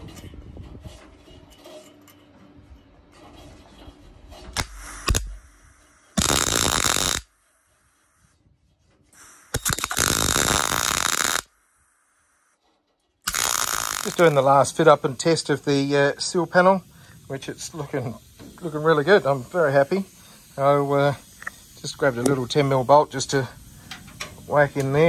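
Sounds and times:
welder crackling: 4.5s - 8.3s, 9.2s - 12.5s, 13.2s - 25.0s.

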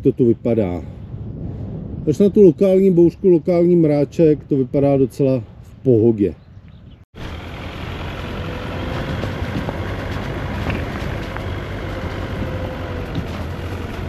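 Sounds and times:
car engine and road rumble: 7.0s - 14.0s.

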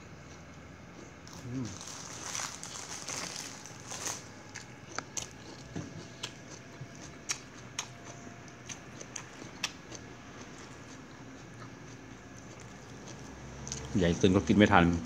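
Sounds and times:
vegetable leaves rustling: 1.6s - 4.3s
chewing clicks and smacks: 4.6s - 14.0s.

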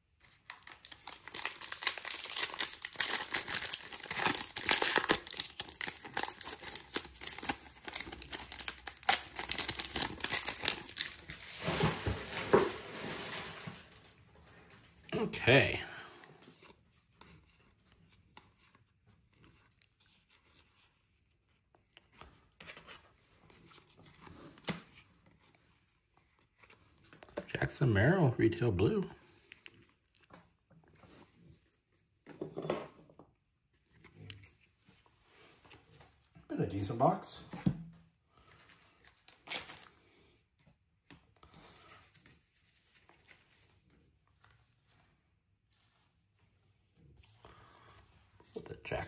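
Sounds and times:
cards rustling: 0.2s - 13.8s, 38.4s - 39.9s.

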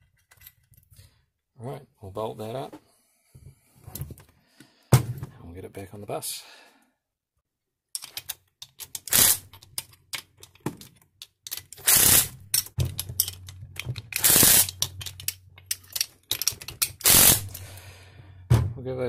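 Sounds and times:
metallic clicks of parts handled: 0.0s - 1.0s, 7.9s - 17.8s
impact driver bursts: 17.0s - 17.6s.

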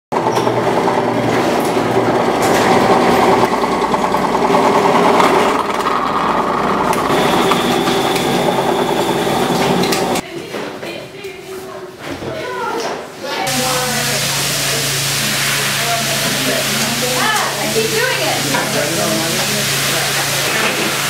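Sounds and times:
drill press boring plastic: 0.2s - 10.2s.

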